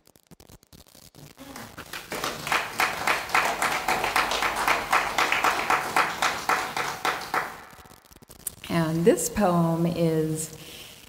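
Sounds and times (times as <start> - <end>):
audience applauding: 1.4 - 7.9.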